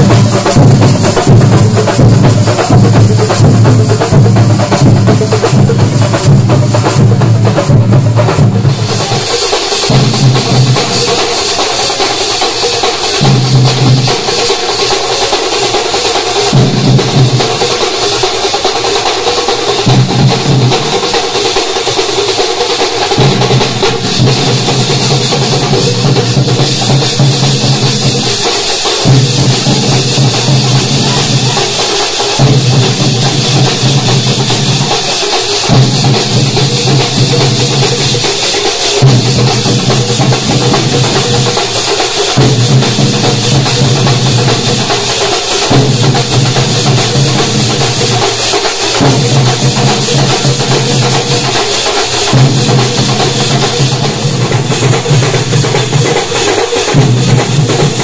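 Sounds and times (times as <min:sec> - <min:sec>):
deep bass drum pattern: 0:00.0 - 0:09.1
street drum troupe music: 0:00.0 - 0:58.0.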